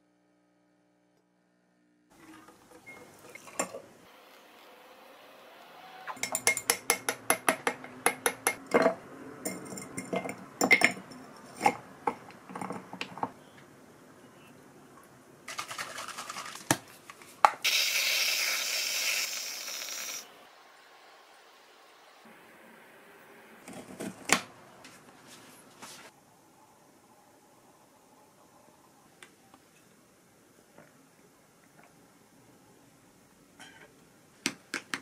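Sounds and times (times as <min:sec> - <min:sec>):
spoon clinking in glass: 0:06.2 - 0:06.8
whipped cream can hissing: 0:17.6 - 0:20.3.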